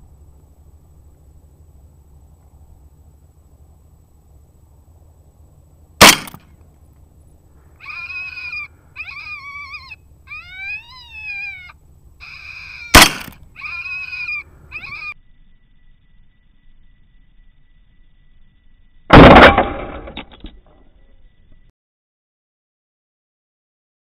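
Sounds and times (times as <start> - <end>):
rifle shot: 6.0 - 6.5, 12.9 - 13.4, 19.1 - 20.2
coyote yelping: 7.8 - 15.2.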